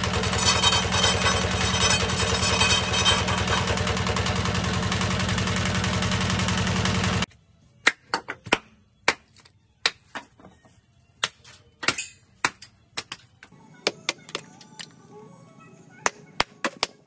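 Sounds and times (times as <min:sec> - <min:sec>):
loud steady running noise: 0:00.0 - 0:07.3.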